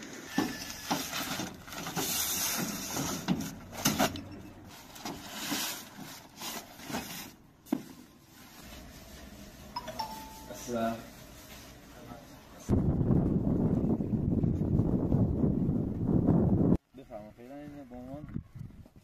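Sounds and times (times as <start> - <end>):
sacks rustling and scraping: 0.0 - 12.7.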